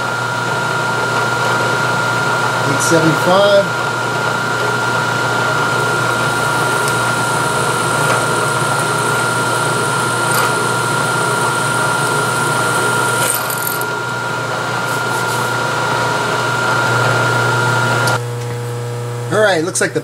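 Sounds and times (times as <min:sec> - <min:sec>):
milling machine drilling steel: 0:05.0 - 0:18.2.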